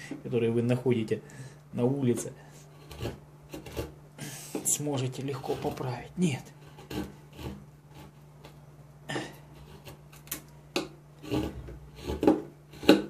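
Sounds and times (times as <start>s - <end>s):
knife cutting wood: 2.7s - 4.0s, 6.6s - 8.2s, 9.6s - 13.0s.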